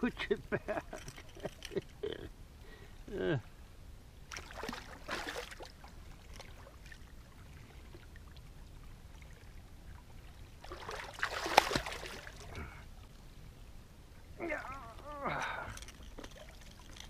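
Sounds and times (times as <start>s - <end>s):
fish thrashing and splashing: 4.3s - 5.8s, 10.7s - 12.4s
loud water slap: 11.2s - 12.2s.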